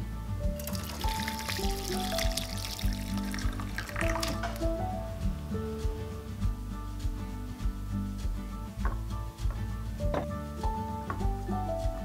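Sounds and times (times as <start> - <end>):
background music: 0.0 - 12.0
liquid pouring through strainer: 0.6 - 4.8.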